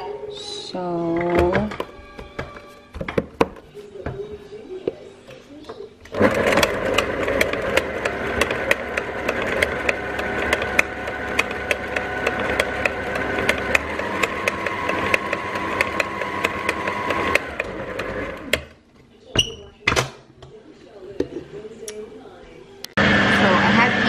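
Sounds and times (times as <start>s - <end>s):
stand mixer motor whine: 6.1s - 18.6s, 23.0s - 24.0s.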